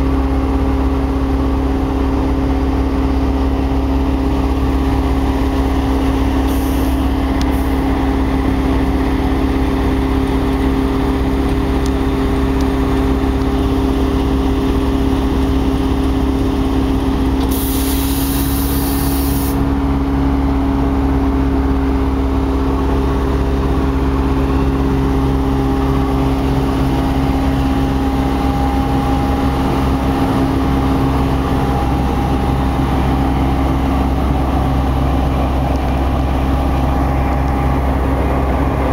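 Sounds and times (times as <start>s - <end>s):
locomotive engine idling: 0.0s - 38.9s
compressed air hiss: 6.5s - 7.8s, 17.4s - 19.6s.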